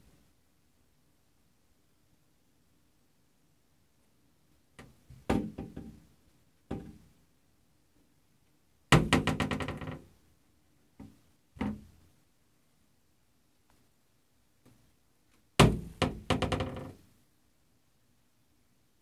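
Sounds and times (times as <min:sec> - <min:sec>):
cupboard door knocking and rattling: 0:05.1 - 0:06.0, 0:09.0 - 0:10.1, 0:15.6 - 0:17.0.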